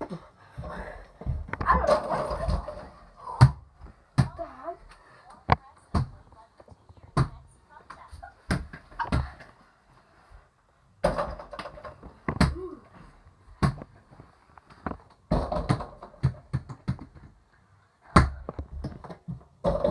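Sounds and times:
kids play-fighting thumps: 0.0 - 4.7, 11.0 - 13.0.

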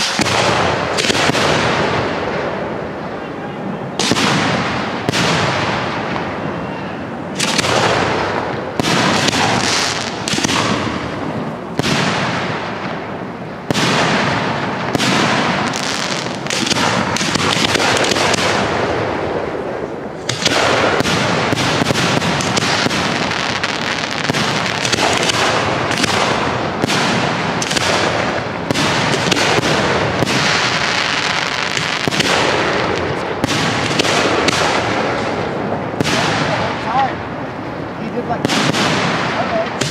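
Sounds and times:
fireworks shells bursting: 0.0 - 2.0.

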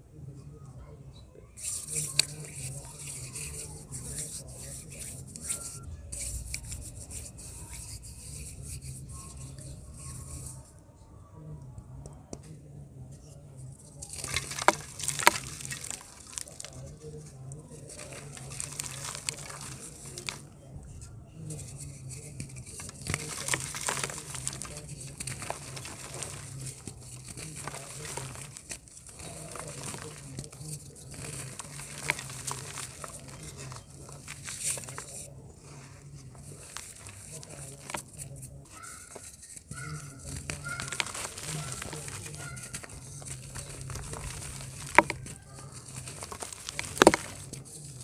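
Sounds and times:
dirt crunching and crumbling: 13.8 - 20.5, 21.5 - 48.0.

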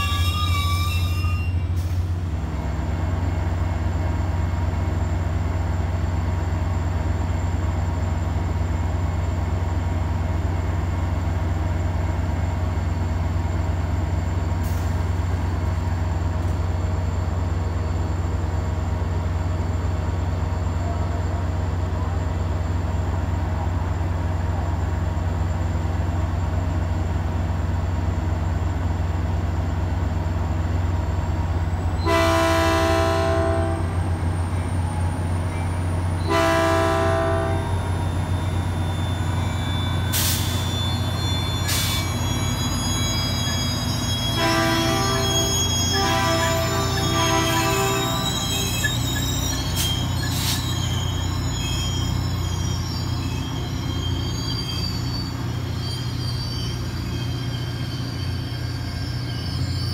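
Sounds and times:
diesel locomotive idling: 1.5 - 59.9
train air horn blasts: 32.0 - 34.0, 36.2 - 37.8, 44.3 - 48.6.

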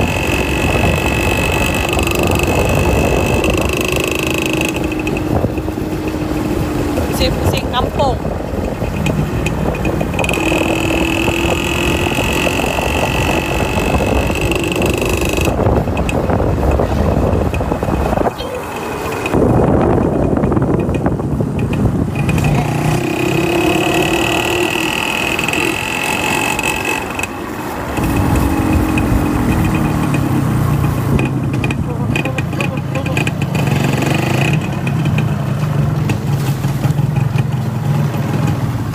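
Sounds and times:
motorbike motor whining: 0.0 - 38.9
wind rushing over microphone: 0.0 - 38.9.

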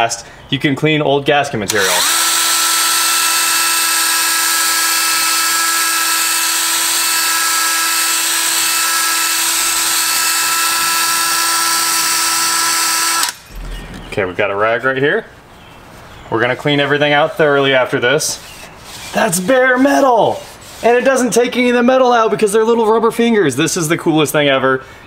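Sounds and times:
cordless drill whining: 1.7 - 13.6
bristle disc grinding metal: 1.7 - 14.0, 17.1 - 21.4.

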